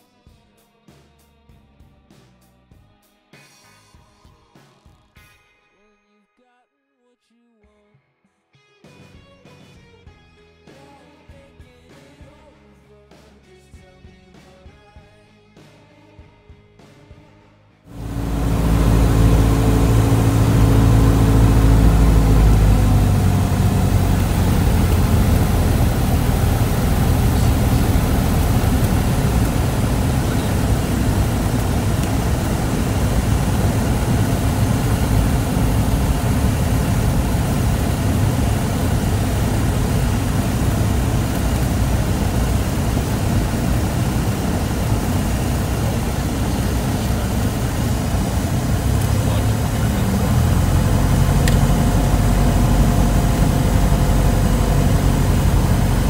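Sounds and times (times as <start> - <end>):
airplane engine and propeller drone: 17.9 - 56.0
rushing airflow: 17.9 - 56.0.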